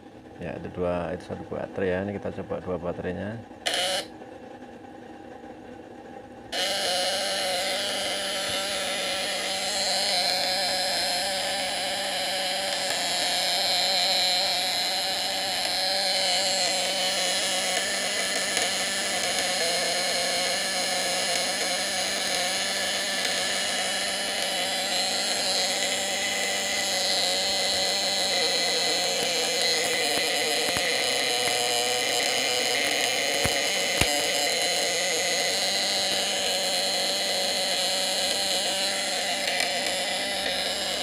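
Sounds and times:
inverter buzzing: 0.0s - 41.0s
sharp clicks: 26.8s - 34.4s.

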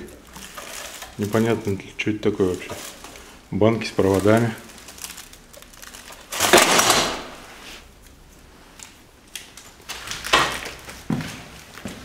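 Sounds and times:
debris rustling and clattering: 0.0s - 1.8s.

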